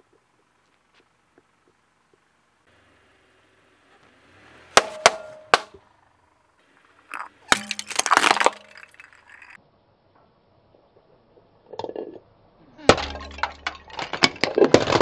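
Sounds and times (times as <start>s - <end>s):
crunching clinking shards: 6.7s - 9.6s, 12.9s - 15.0s
ceramic bowls shattering: 6.9s - 9.6s, 12.9s - 15.0s.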